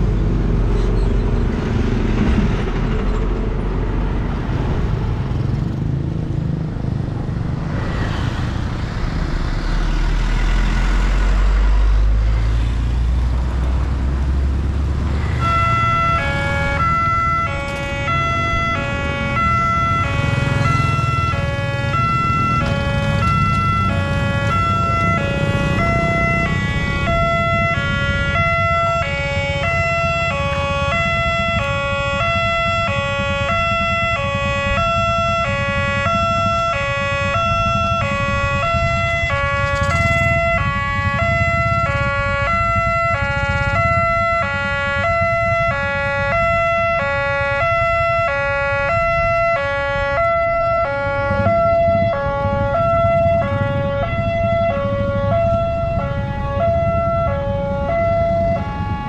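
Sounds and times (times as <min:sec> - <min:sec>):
two-tone level crossing siren: 0:15.2 - 0:59.0.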